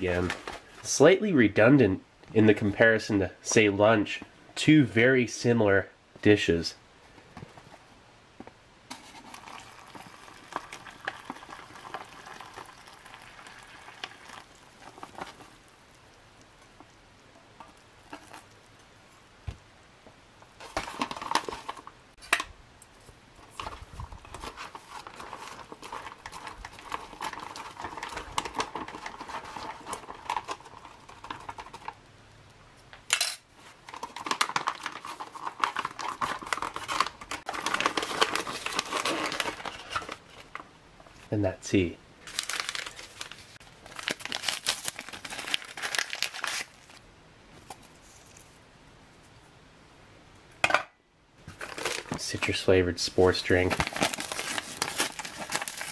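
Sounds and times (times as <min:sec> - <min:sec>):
foil pouch crinkling: 0:09.1 - 0:16.9, 0:17.7 - 0:18.7, 0:20.6 - 0:21.9, 0:23.4 - 0:32.0, 0:33.8 - 0:40.5, 0:42.2 - 0:47.0, 0:51.6 - 0:52.6, 0:53.2 - 0:55.9
water pouring into pouch: 0:09.2 - 0:15.9
wrapper crinkling open: 0:09.2 - 0:16.0, 0:17.8 - 0:18.6, 0:20.6 - 0:21.9, 0:23.5 - 0:32.0, 0:33.8 - 0:40.6, 0:42.2 - 0:47.0, 0:51.6 - 0:52.6, 0:53.2 - 0:55.9.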